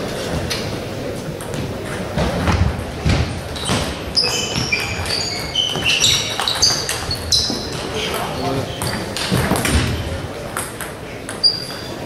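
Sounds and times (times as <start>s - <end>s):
murmur of voices: 0.0s - 12.0s
sports shoes squeaking on floor: 1.6s - 10.2s, 11.3s - 12.0s.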